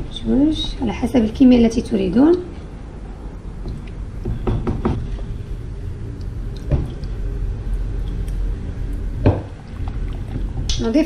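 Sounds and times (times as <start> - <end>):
water boiling in a pot: 5.3 - 11.0.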